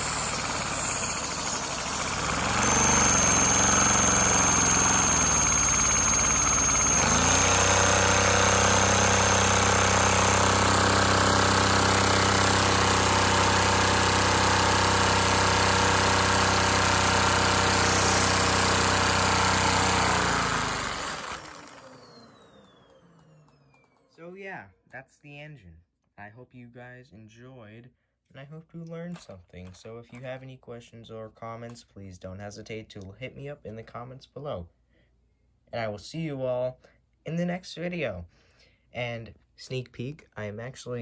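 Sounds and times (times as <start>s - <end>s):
small engine mechanical hum: 0.0s - 24.2s.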